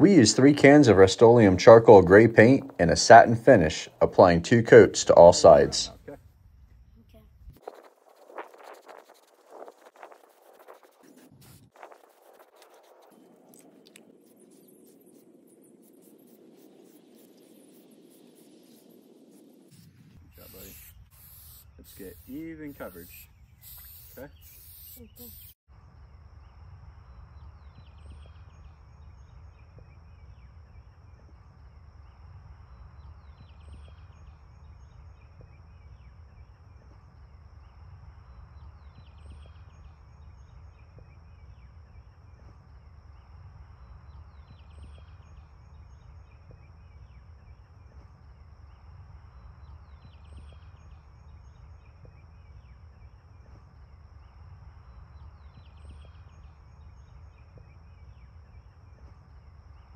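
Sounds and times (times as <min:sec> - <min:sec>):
bird trilling song: 0:20.3 - 0:25.6.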